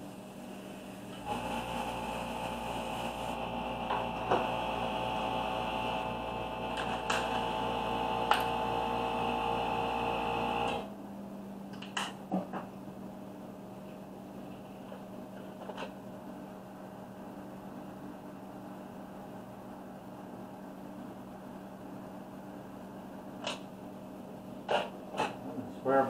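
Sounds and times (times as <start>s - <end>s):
small electric motor humming: 1.2s - 10.9s.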